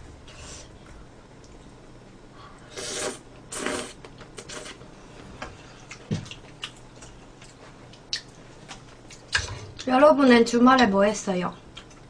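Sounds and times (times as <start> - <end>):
noodles being slurped: 2.7 - 4.8
utensil clicks and chewing: 5.8 - 9.4, 11.7 - 12.0.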